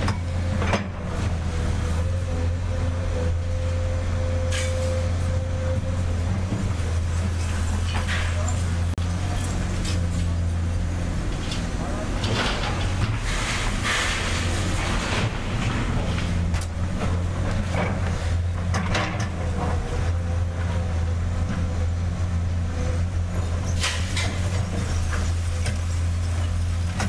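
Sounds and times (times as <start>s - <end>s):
diesel machinery engine drone: 0.0s - 27.0s
sharp clanks and knocks: 7.3s - 8.7s, 11.3s - 13.4s, 14.7s - 19.8s.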